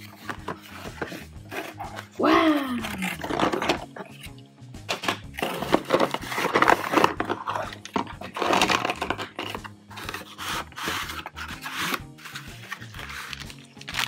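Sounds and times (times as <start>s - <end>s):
packaging crinkling and rustling: 5.4s - 14.0s.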